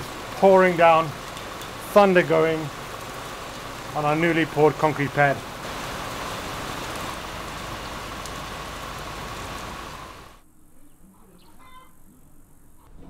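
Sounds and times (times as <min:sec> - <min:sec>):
heavy rain pouring: 0:00.0 - 0:10.4.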